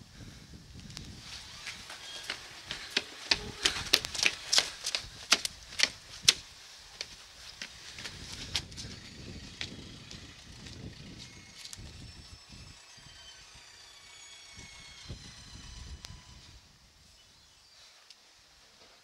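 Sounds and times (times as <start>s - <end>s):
footsteps on masonry steps: 1.0s - 11.8s.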